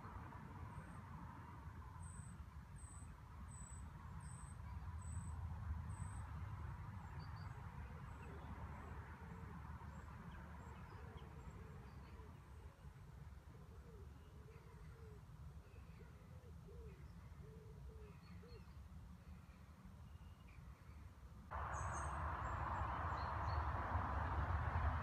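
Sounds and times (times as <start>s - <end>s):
faint low rumble: 21.5s - 25.0s.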